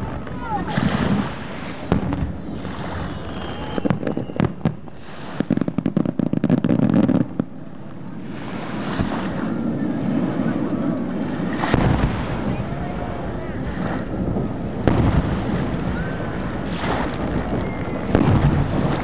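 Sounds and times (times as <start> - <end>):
surf: 0.0 - 19.0
wind: 0.0 - 19.0
crackling firework pops: 1.8 - 7.6, 10.6 - 12.6, 13.7 - 19.0.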